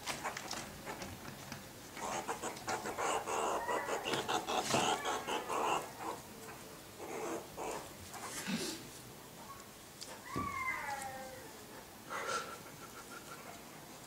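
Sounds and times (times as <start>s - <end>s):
meerkats chirping: 2.0s - 8.4s.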